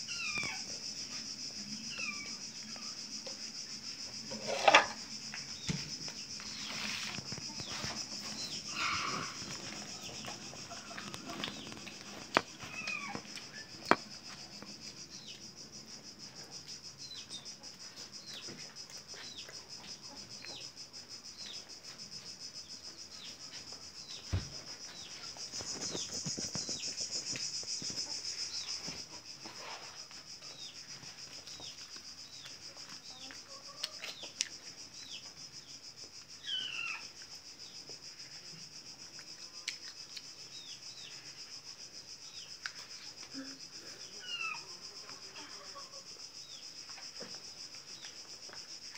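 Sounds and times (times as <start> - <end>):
steady high-pitched hiss: 0.0 - 48.9
small birds chirping: 1.8 - 3.0, 5.2 - 15.6, 22.6 - 28.9.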